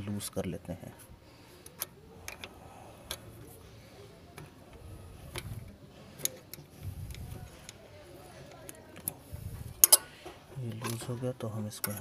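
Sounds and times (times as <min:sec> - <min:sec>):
spanner metallic clicks: 0:09.8 - 0:10.1.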